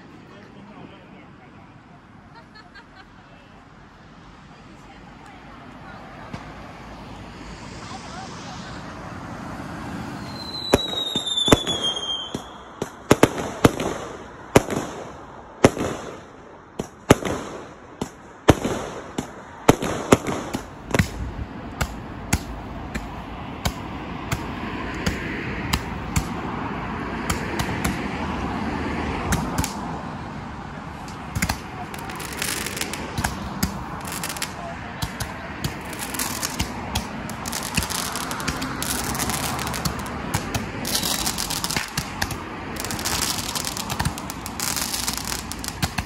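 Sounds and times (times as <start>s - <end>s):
firework hiss and crackle: 5.9s - 28.4s, 29.2s - 46.0s
falling firework whistle: 10.2s - 12.7s
firework bangs: 10.2s - 28.2s, 29.2s - 30.0s, 30.9s - 46.0s.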